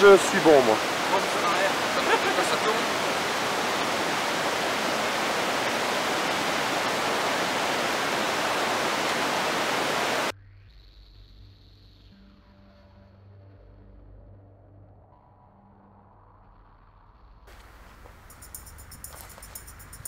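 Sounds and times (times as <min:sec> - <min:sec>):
running water rushing: 0:00.0 - 0:10.3.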